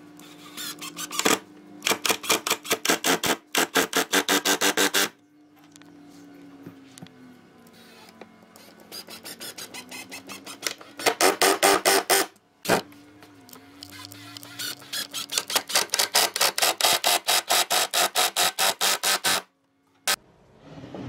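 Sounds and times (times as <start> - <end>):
impact driver hammering screws: 9.0 - 12.8, 14.2 - 19.4.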